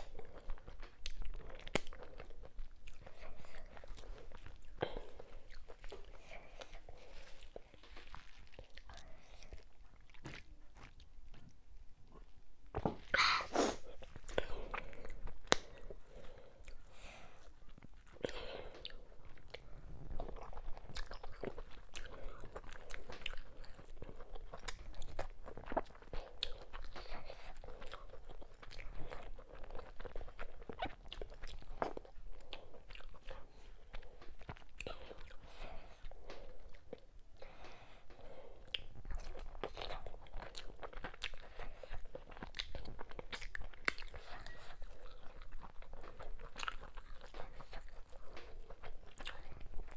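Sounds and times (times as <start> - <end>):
wet chewing mouth clicks: 13.9 - 49.9.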